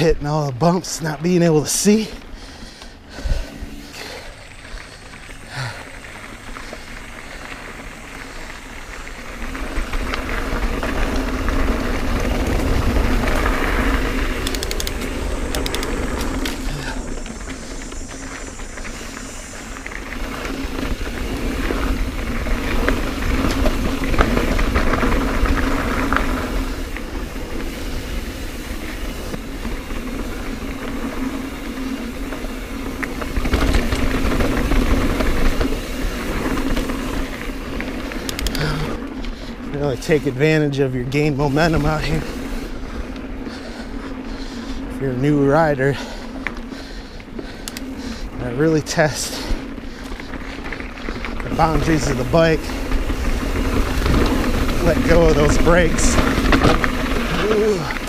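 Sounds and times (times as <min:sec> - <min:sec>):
bike rattling over roots: 0:00.0 - 0:58.0
bike tyre rumble: 0:00.0 - 0:58.0
wind rushing over microphone: 0:43.9 - 0:58.0.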